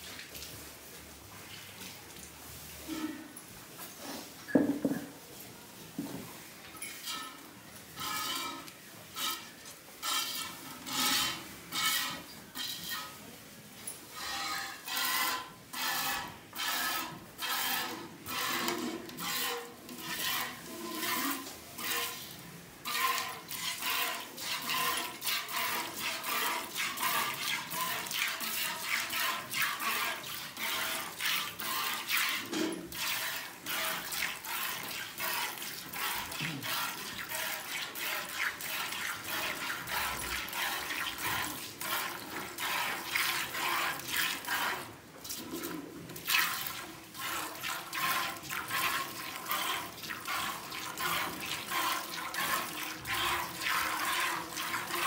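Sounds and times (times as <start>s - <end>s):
milk squirting into steel pail: 14.9s - 55.0s.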